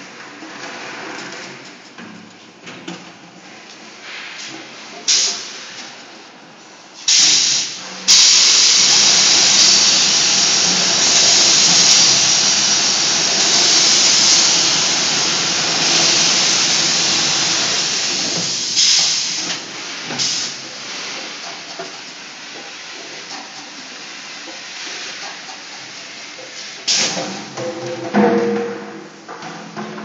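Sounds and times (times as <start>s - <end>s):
water spray hissing: 7.1s - 19.5s.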